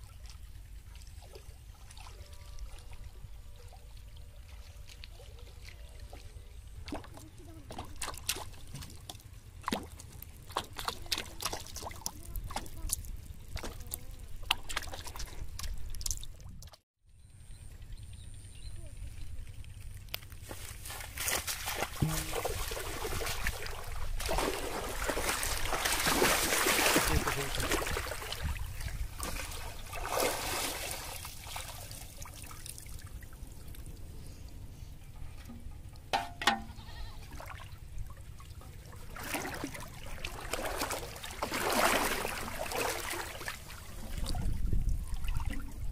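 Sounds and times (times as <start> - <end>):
soft splashes: 0.0 - 16.8, 20.7 - 34.1, 35.4 - 45.9
bottle float splashing on water: 21.3 - 32.6, 39.1 - 44.4
water dripping: 22.0 - 23.0.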